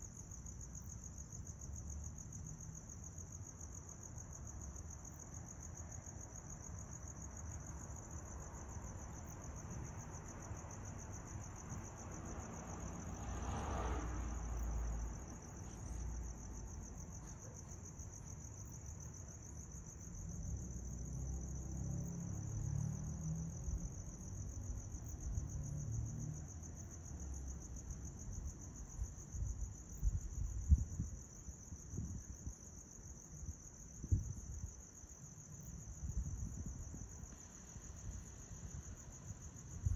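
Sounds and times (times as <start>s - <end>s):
crickets chirping: 0.0s - 39.9s
wind rumble on microphone: 28.2s - 39.9s.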